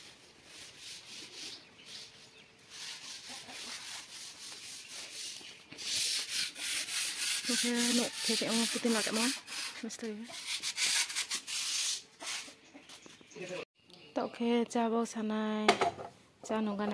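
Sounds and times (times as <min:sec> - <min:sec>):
hand sanding a wall: 0:00.0 - 0:12.6
person speaking: 0:07.4 - 0:10.3.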